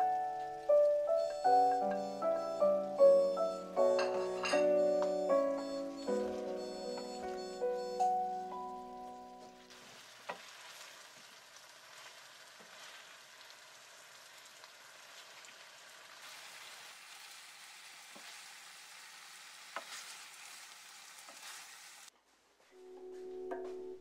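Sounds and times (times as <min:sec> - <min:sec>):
food sizzling in hot oil: 0:09.6 - 0:22.1.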